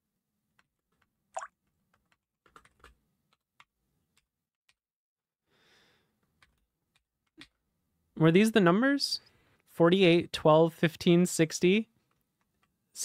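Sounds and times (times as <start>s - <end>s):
typing on computer keyboard: 1.9s - 4.3s.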